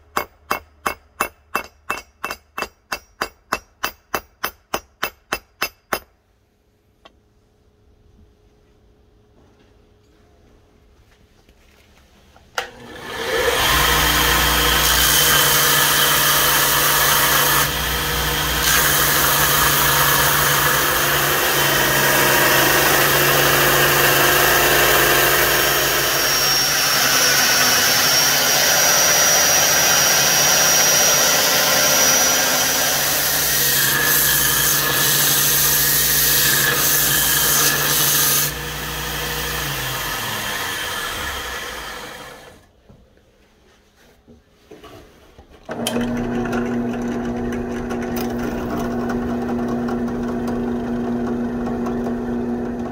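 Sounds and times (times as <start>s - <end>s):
belt grinder grinding metal: 12.7s - 42.6s, 45.7s - 52.5s.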